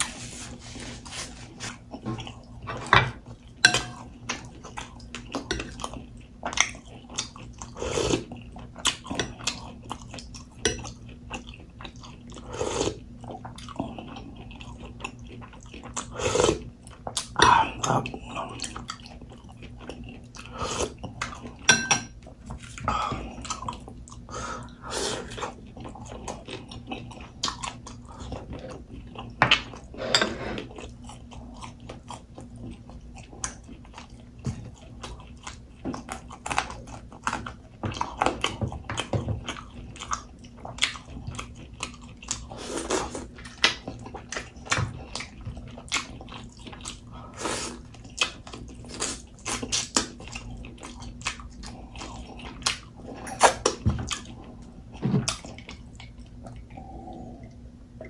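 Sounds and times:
man chewing and biting: 30.7 - 57.2.

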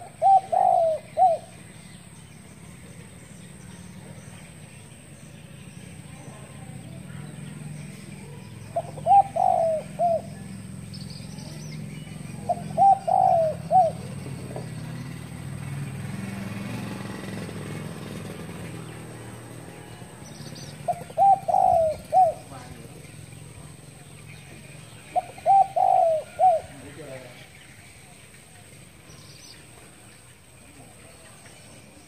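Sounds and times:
dove cooing: 0.0 - 2.1, 6.2 - 15.6, 17.1 - 27.4.

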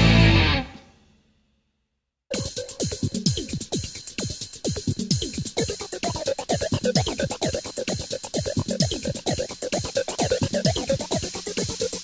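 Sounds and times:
electronic dance music: 2.3 - 12.0
ticking hi-hats: 2.3 - 12.0.

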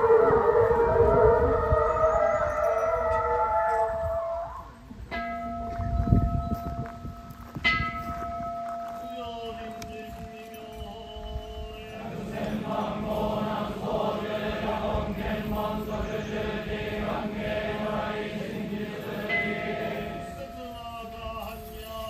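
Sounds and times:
men chanting in unison: 11.8 - 20.4.

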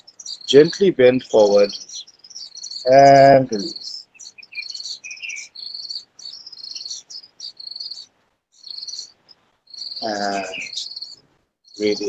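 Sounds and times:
crickets chirping: 3.6 - 12.0.

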